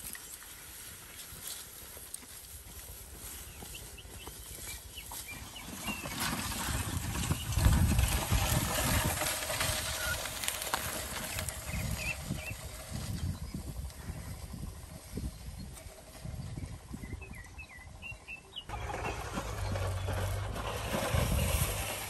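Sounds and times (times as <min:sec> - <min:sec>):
footsteps: 0:00.0 - 0:11.5
bamboo poles dragged on dirt: 0:00.0 - 0:17.4, 0:18.7 - 0:22.0.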